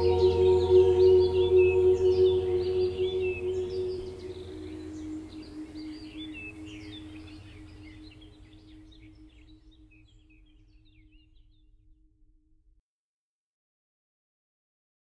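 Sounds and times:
ambient music drone: 0.0 - 10.3
bird chirps: 0.0 - 11.2.

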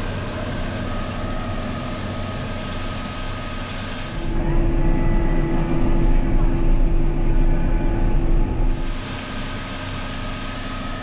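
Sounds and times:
tractor machinery noise: 0.0 - 4.6
tractor engine hum from cab: 0.0 - 11.0.

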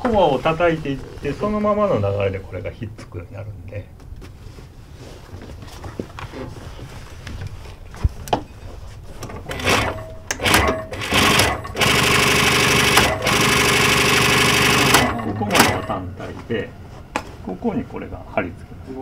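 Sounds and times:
sewing machine stitching: 9.3 - 16.0.

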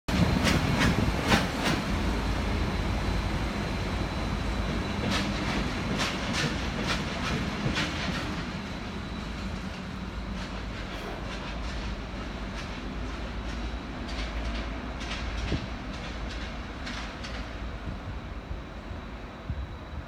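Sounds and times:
train wheels clicking over rail joints: 0.1 - 2.1, 4.2 - 18.1
diesel locomotive engines humming: 0.1 - 20.0.

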